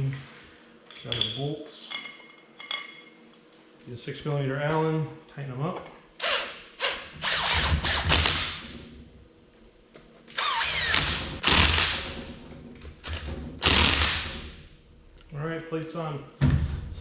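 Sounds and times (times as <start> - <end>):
cordless drill driving bolts: 6.2 - 8.5, 10.3 - 12.0.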